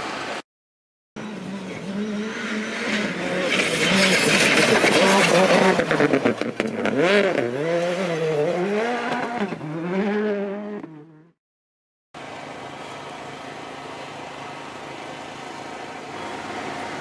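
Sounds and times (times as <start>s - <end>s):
rally car engine revving: 1.2s - 11.4s.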